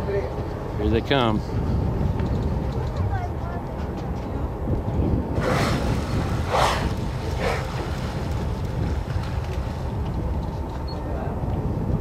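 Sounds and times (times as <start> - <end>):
low rumble of boat: 0.0 - 12.0
wind noise: 1.1 - 12.0
whales exhaling breathy blows: 5.4 - 8.3.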